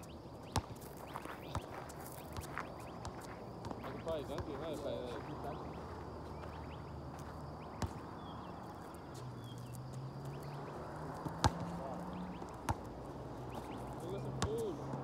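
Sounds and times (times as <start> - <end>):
basketball knocks: 14.4 - 15.0.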